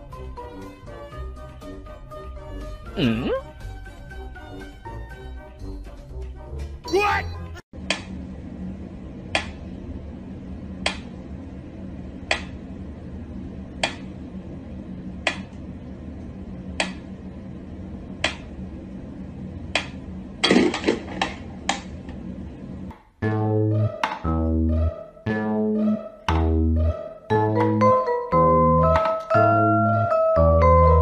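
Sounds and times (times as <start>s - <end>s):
low hum: 7.8s - 31.0s.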